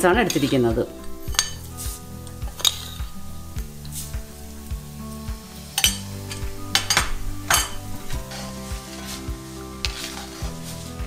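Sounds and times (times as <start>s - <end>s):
background music with beat: 0.0s - 11.0s
oil sizzling: 0.0s - 11.0s
metal fork clinking on pan: 1.3s - 1.7s, 5.8s - 8.4s.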